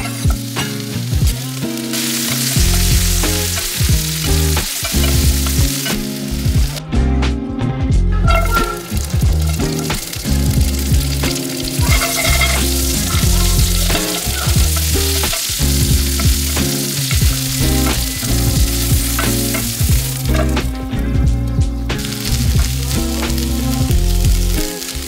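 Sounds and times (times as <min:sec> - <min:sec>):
wooden spatula stirring in pan: 0:00.0 - 0:06.6, 0:08.3 - 0:20.7
beans sizzling in hot oil: 0:00.0 - 0:06.8, 0:08.3 - 0:21.0, 0:21.9 - 0:25.0
background music with bass line: 0:00.0 - 0:25.0.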